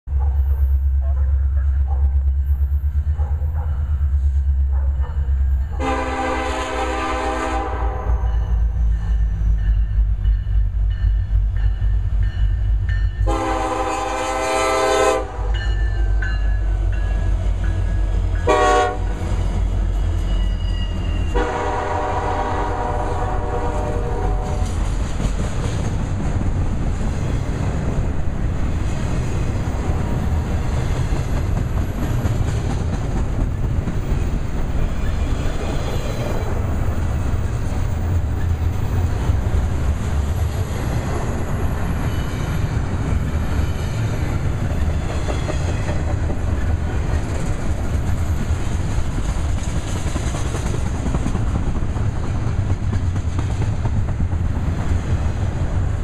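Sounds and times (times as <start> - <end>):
train rumble and wheel clatter: 0.0 - 56.0
train horn blasts: 5.0 - 9.4, 13.2 - 19.6, 21.2 - 24.8.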